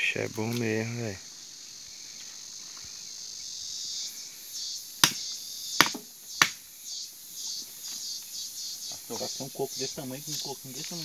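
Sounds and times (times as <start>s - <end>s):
insects droning: 0.0s - 11.0s
nuts being struck: 5.0s - 5.2s, 5.8s - 6.6s.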